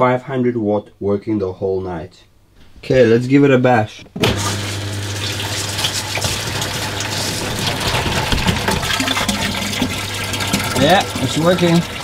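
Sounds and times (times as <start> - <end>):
washing machine humming: 4.2 - 12.0
water pouring into plastic barrel: 4.3 - 12.0.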